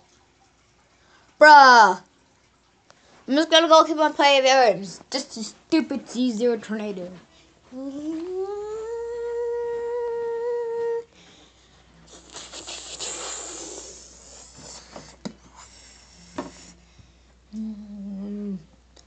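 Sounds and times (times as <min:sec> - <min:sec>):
soft hissing: 0:02.9 - 0:18.7
person humming: 0:07.7 - 0:11.1, 0:12.1 - 0:14.6, 0:17.5 - 0:18.7.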